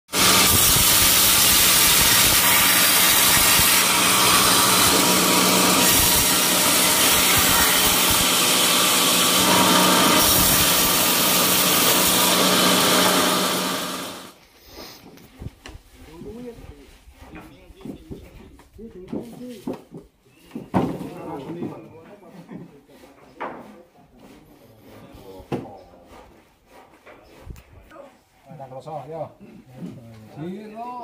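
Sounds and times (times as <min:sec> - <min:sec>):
saw blade rasping through log: 0:00.1 - 0:18.2, 0:22.8 - 0:28.8
motor hum: 0:00.2 - 0:14.3.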